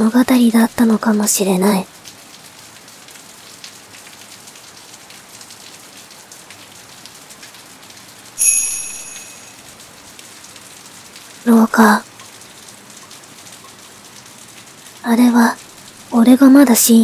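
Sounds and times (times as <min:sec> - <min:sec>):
heavy rain: 0:00.0 - 0:17.0
high ringing chime: 0:08.4 - 0:09.7.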